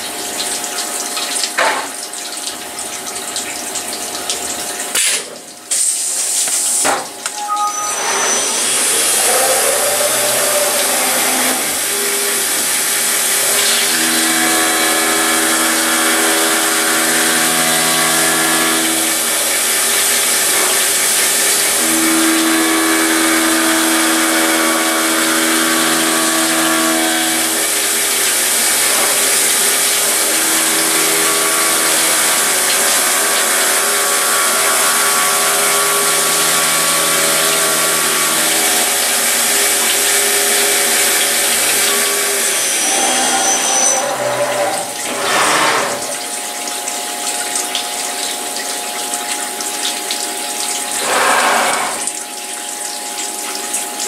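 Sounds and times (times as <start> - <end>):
coolant spraying and splashing: 0.0 - 7.2
milling machine whining: 7.2 - 48.2, 48.9 - 52.7.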